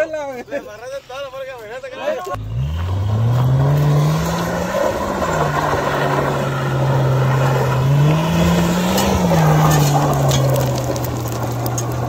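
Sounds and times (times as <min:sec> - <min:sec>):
tyres churning dirt: 0:00.0 - 0:12.0
car engine revving: 0:02.4 - 0:12.0.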